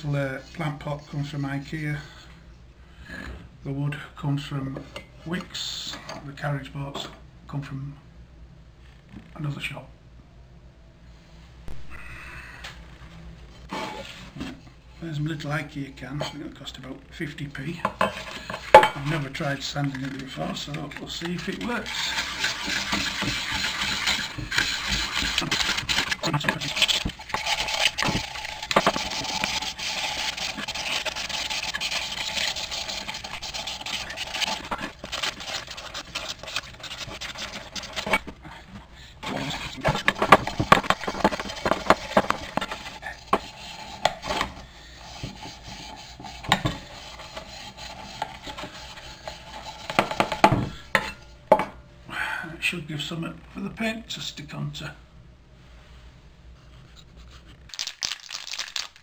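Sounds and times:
sanding pad scrubbing metal: 20.2s - 38.1s, 39.4s - 50.4s.

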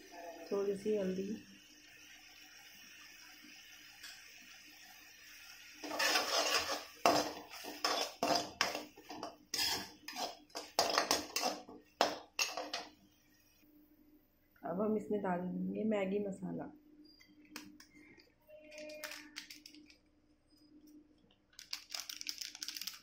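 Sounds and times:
spatula scraping metal pan: 5.8s - 11.7s.

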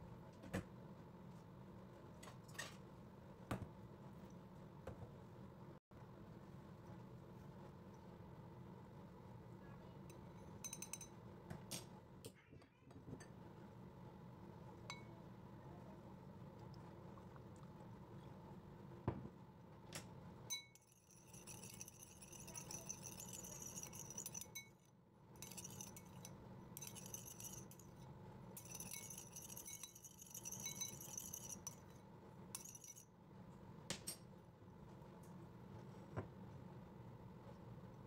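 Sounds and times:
metal spoon stirring in ceramic bowl: 10.1s - 11.2s, 20.5s - 33.2s
spoon clinking against bowl: 10.1s - 11.2s, 14.9s - 15.1s, 20.5s - 32.0s, 32.6s - 33.0s.

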